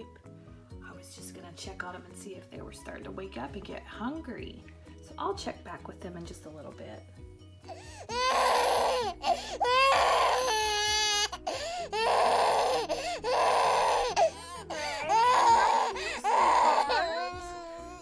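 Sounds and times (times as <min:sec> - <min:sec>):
baby crying: 0:07.7 - 0:18.0.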